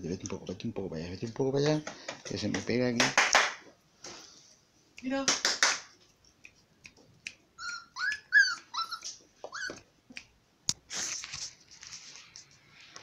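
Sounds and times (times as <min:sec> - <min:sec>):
puppy yipping: 0:07.6 - 0:09.9
scuffling noise: 0:10.8 - 0:13.0.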